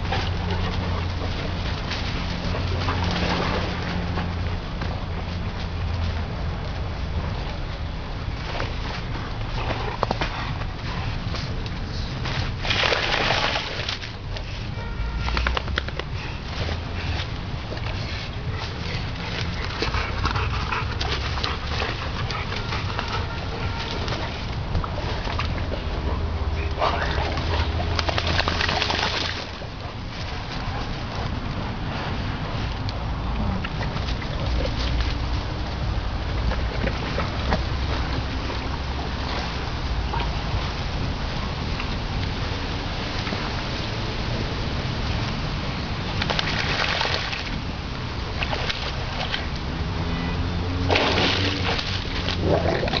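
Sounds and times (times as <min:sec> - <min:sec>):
dog splashing in water: 0:00.0 - 0:04.5, 0:12.2 - 0:14.4, 0:15.1 - 0:30.6, 0:46.0 - 0:47.6, 0:48.3 - 0:53.0.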